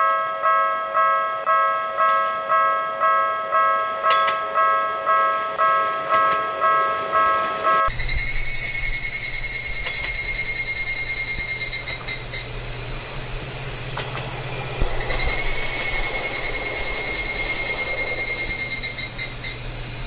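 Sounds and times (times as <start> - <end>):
low rumble of passing train: 0.4 - 20.0
crickets trilling: 7.9 - 20.0
higher insect trill: 7.9 - 20.0.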